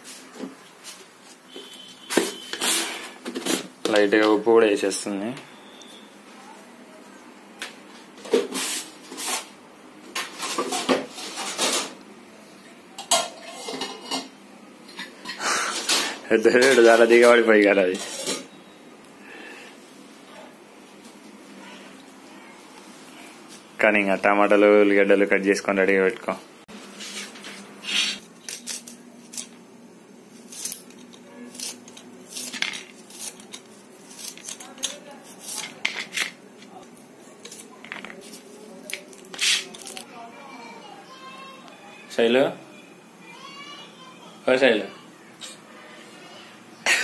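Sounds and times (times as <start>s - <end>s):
onions crunching as sliced: 30.5s - 35.8s.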